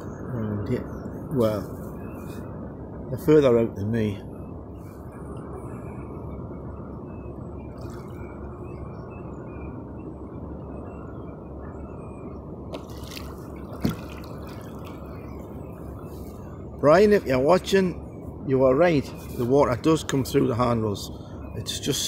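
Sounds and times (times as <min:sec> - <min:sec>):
steady low rush: 0:00.0 - 0:22.0
water lapping against plastic kayak: 0:12.7 - 0:15.2.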